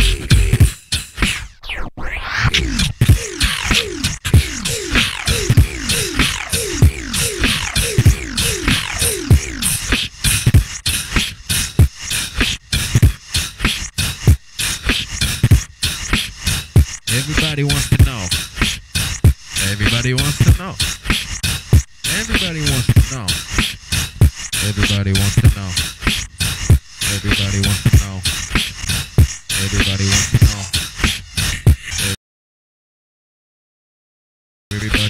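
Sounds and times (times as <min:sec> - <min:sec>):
beatboxing: 0:00.0 - 0:32.2, 0:34.7 - 0:35.0
vocal crow caw imitation: 0:02.3 - 0:09.8.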